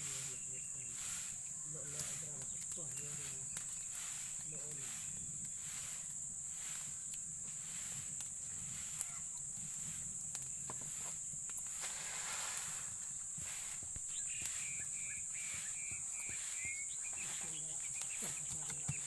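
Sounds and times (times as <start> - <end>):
high-pitched insect drone: 0.0 - 19.0
faint clicks: 2.0 - 5.6, 8.1 - 9.5.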